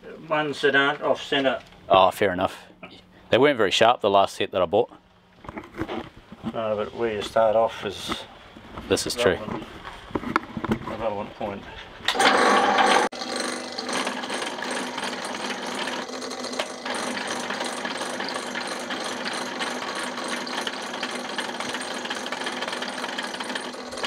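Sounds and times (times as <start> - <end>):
drill press boring through steel: 12.1 - 24.0.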